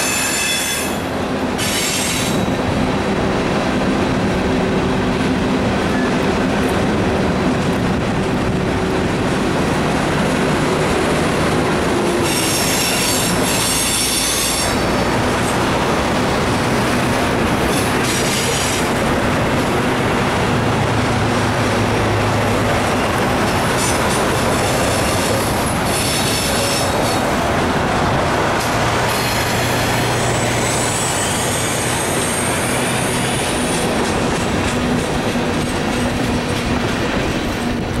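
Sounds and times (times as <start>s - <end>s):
high-pitched wheel squeals: 0.0s - 1.0s, 30.1s - 33.8s
freight train wheels rumbling: 0.0s - 38.0s.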